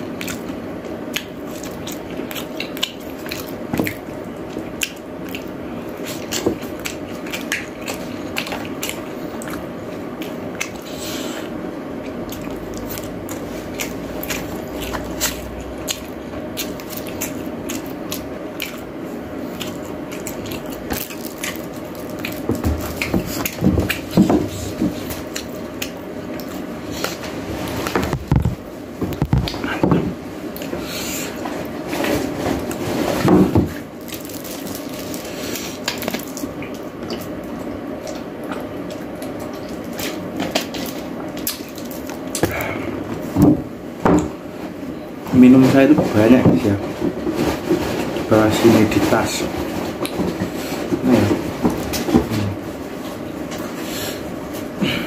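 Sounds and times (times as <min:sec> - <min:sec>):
person chewing food: 0:00.0 - 0:32.8, 0:33.7 - 0:43.4.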